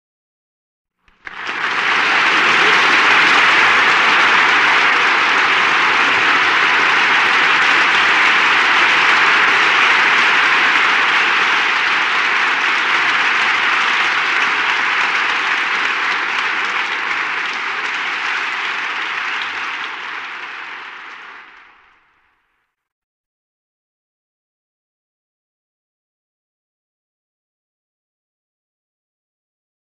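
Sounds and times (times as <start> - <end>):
crowd clapping: 1.1 - 22.6.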